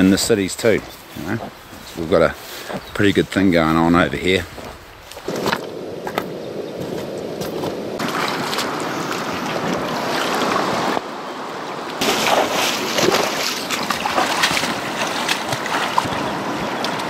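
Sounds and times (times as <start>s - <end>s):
rushing river water: 0.0s - 17.0s
wind on microphone: 4.0s - 11.2s, 12.0s - 17.0s.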